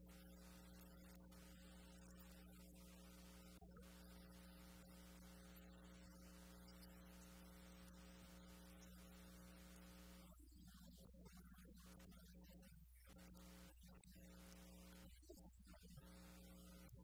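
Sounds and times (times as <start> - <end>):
faint electrical hum: 0.0 - 17.0.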